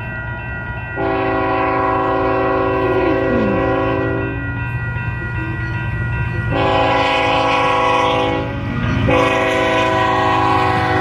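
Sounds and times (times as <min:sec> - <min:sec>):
train rumbling: 0:00.0 - 0:11.0
locomotive air horn blasts: 0:01.0 - 0:04.4, 0:06.5 - 0:11.0.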